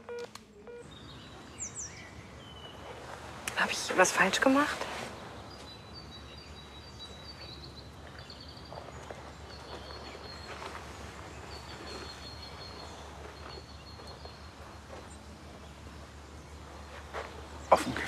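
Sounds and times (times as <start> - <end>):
steady low hum: 0.0 - 18.0
faint rustles: 7.0 - 18.0.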